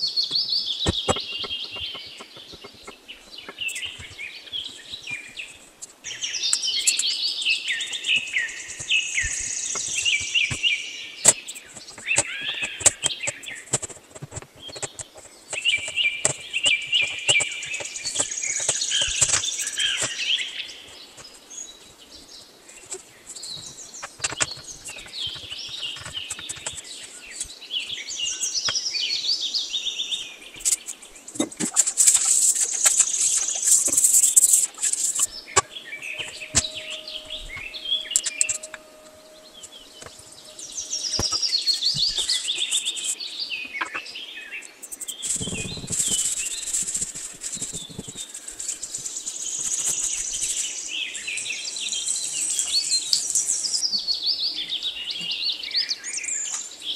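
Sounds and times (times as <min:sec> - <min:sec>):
scattered clicks and knocks: 0:00.0 - 0:07.1, 0:08.1 - 0:20.2, 0:22.8 - 0:27.5, 0:30.6 - 0:44.0, 0:44.7 - 0:50.6
birds chirping and trilling: 0:00.0 - 0:56.9.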